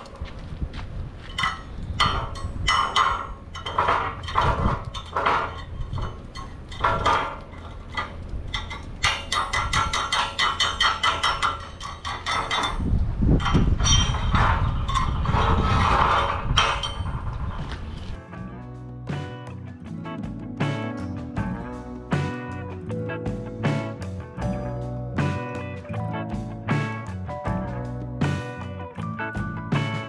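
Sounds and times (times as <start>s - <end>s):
hammer striking ringing steel plate: 1.3s - 12.8s.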